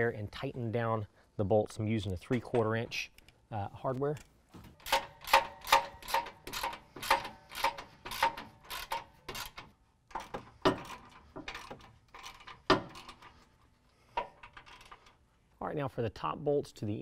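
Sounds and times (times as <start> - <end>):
socket ratchet clicking: 4.8 - 13.2.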